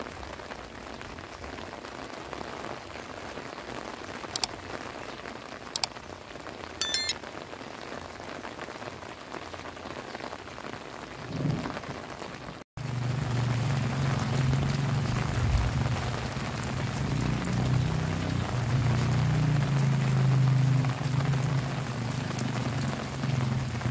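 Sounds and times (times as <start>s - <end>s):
heavy rain falling: 0.0s - 23.9s
high-pitched squeak: 6.8s - 7.1s
sharp ticks: 6.8s - 7.1s.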